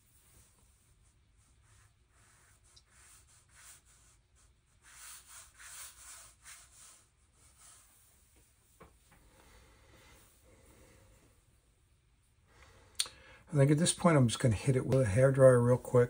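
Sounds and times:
brush swishing strokes: 0:00.0 - 0:08.8.

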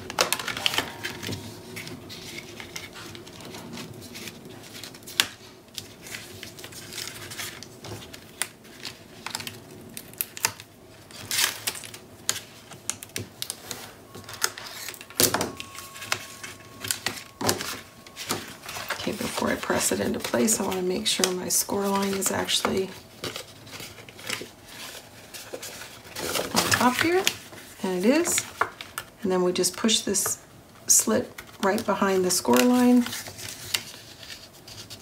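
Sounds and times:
paper rustling: 0:00.0 - 0:29.1, 0:31.4 - 0:35.0.

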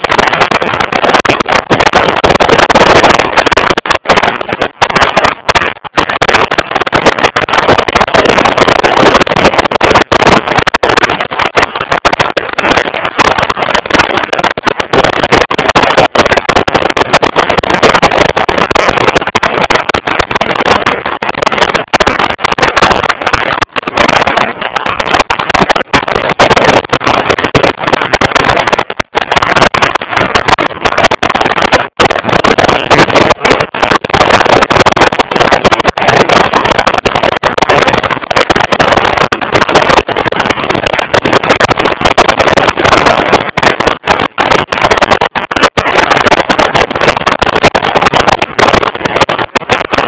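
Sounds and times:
wind rushing on microphone: 0:00.0 - 0:50.0.

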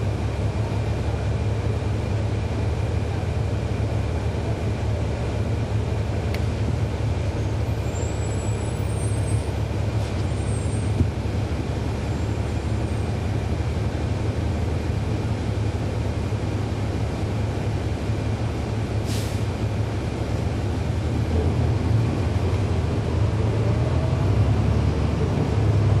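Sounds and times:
bus diesel engine rumbling: 0:00.0 - 0:26.0
short hiss: 0:19.0 - 0:19.5.

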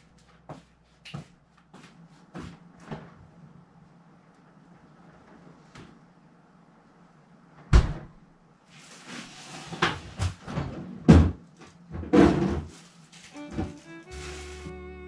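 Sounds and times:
household knocks and clatter: 0:09.8 - 0:12.8
rustling: 0:12.6 - 0:14.8.

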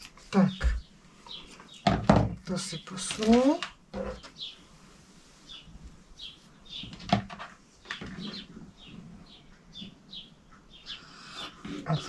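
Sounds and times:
small bird chirping: 0:04.0 - 0:04.6, 0:05.4 - 0:12.0.

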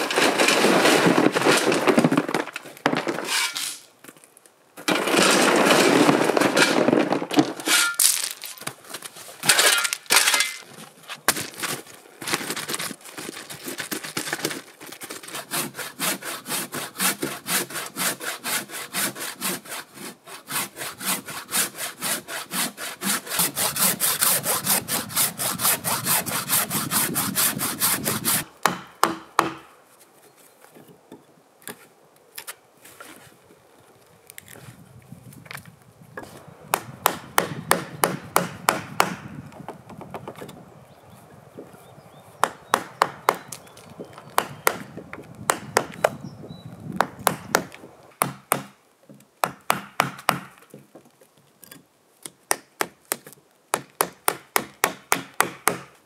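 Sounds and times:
hand saw cutting log: 0:15.0 - 0:29.6.

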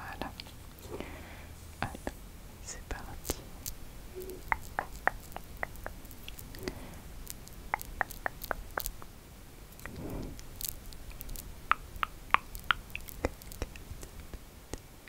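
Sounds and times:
faint low background: 0:00.0 - 0:15.0
lip and tongue clicks: 0:02.9 - 0:09.1, 0:09.8 - 0:14.9.

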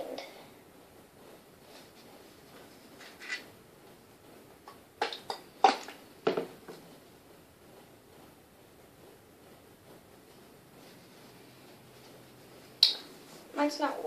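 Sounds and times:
bottle and tissue rustling: 0:10.0 - 0:14.0.

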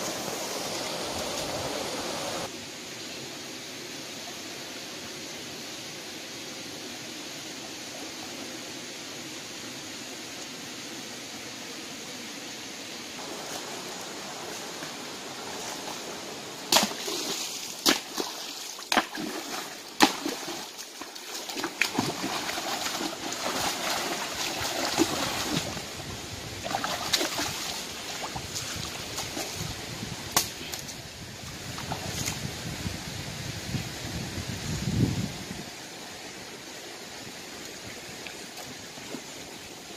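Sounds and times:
hands splashing in stream: 0:13.2 - 0:30.9.

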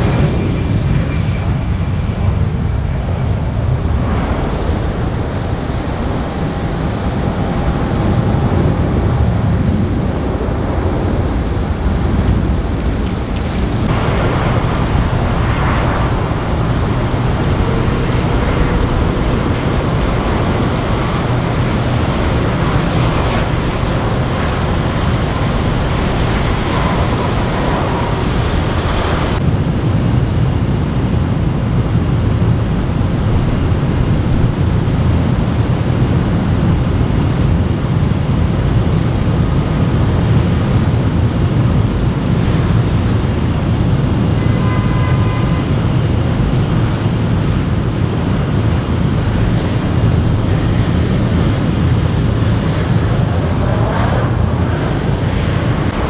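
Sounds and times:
jet engines rumbling: 0:00.0 - 0:56.0.

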